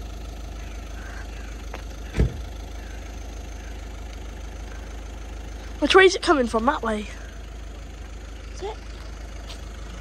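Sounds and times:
engine idling hum: 0:00.0 - 0:10.0
loud thump: 0:02.1 - 0:02.4.

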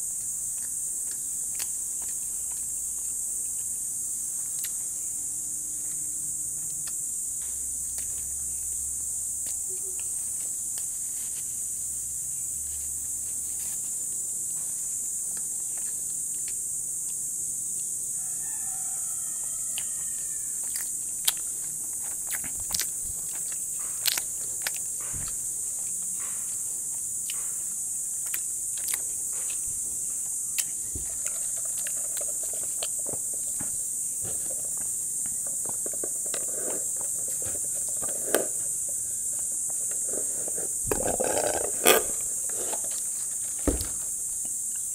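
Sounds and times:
steady high hiss: 0:00.0 - 0:44.9
slurping through a straw: 0:39.9 - 0:43.0.

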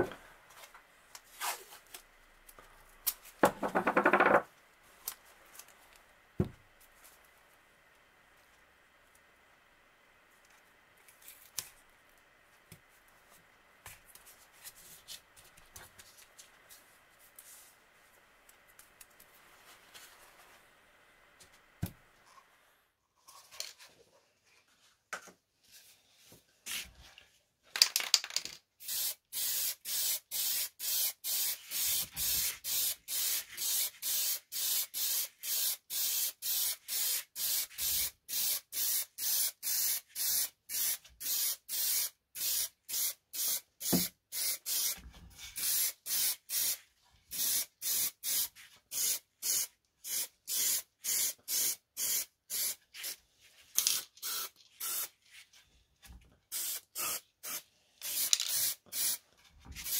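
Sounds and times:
aerosol spray can hissing: 0:28.8 - 0:45.0, 0:45.6 - 0:53.2, 0:53.9 - 0:55.1, 0:56.5 - 0:59.2.

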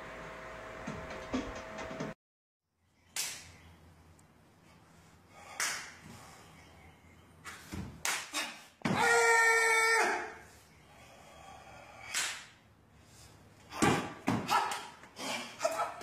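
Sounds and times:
person shouting kiai: 0:08.3 - 0:10.4, 0:13.8 - 0:16.0.

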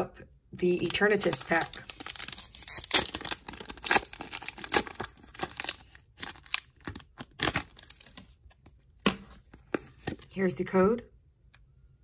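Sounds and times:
foil wrapper crinkling and tearing: 0:00.6 - 0:08.4.

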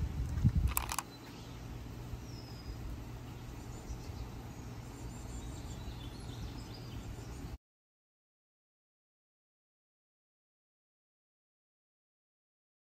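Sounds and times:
steady low rumble: 0:00.0 - 0:07.2
faint bird chirps: 0:00.9 - 0:07.6.

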